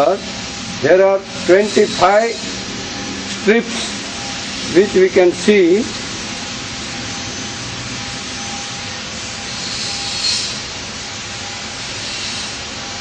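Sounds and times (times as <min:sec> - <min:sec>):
outdoor hiss: 0:00.0 - 0:13.0.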